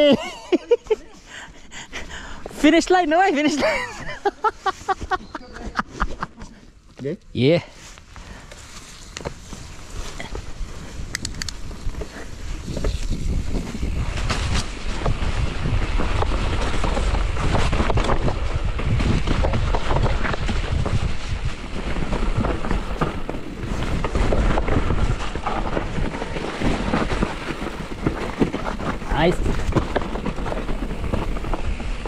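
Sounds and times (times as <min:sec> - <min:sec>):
bike rumble: 0:07.8 - 0:32.0
wind rushing over microphone: 0:09.2 - 0:32.0
bike knocks and rattles: 0:11.2 - 0:32.0.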